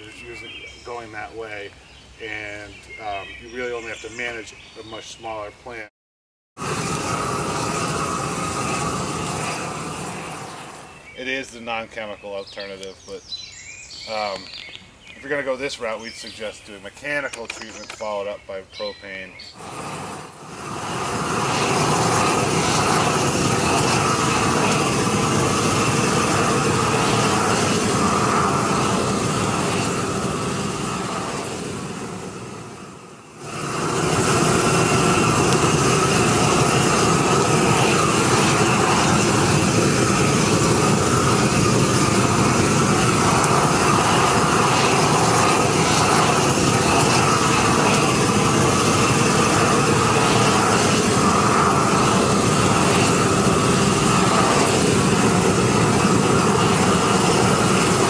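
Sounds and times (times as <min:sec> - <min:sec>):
weed torch roaring: 0:06.6 - 0:11.7, 0:19.5 - 0:58.0.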